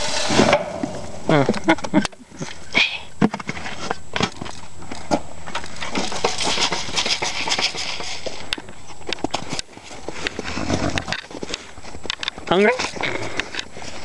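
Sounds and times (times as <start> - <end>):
pony eating grain from a pan: 3.3 - 14.0.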